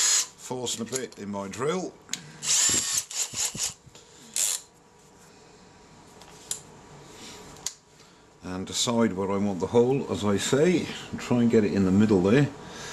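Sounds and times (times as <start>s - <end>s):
power drill motor whirring: 0.0s - 0.4s, 2.4s - 3.8s.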